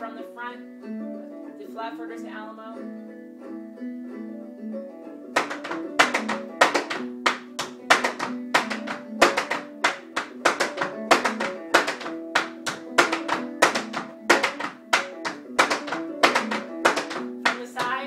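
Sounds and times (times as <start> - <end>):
plucked string music: 0.0 - 18.0
tap shoes on hard floor: 5.4 - 18.0.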